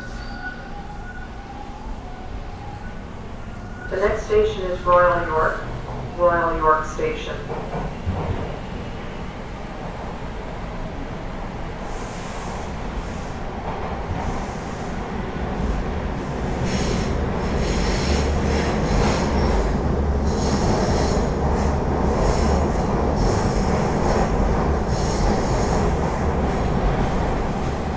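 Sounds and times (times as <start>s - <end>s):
wheels squealing on rails: 0.0s - 4.3s, 16.6s - 25.8s
subway train rumble: 0.0s - 27.9s.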